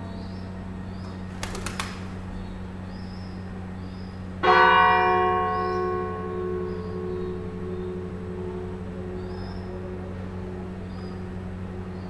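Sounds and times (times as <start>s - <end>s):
large bell ringing: 4.2s - 12.0s.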